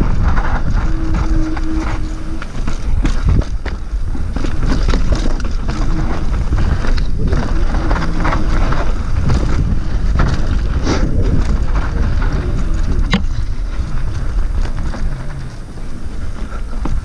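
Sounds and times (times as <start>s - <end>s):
bike rattling and knocking: 0.0s - 17.0s
tyres on dirt: 0.0s - 17.0s
wind buffeting microphone: 0.0s - 17.0s.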